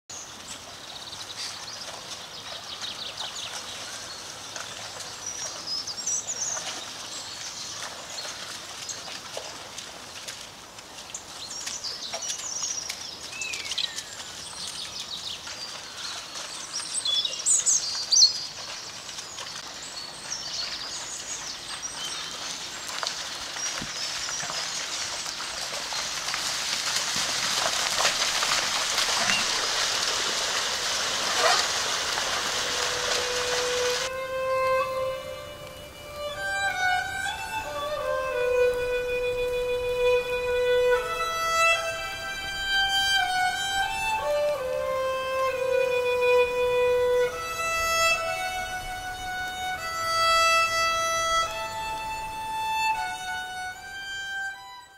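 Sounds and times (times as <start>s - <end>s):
cattle splashing through water: 0.5s - 34.1s
small birds chirping: 11.1s - 26.2s.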